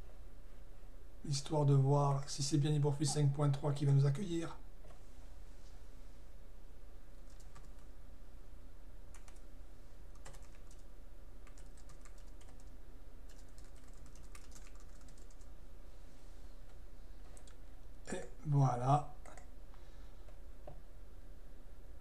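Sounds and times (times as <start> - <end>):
steady low hum: 0.0 - 22.0
computer keyboard clicks: 7.2 - 7.9, 9.1 - 9.4, 10.1 - 10.8, 11.4 - 12.7, 13.3 - 15.5.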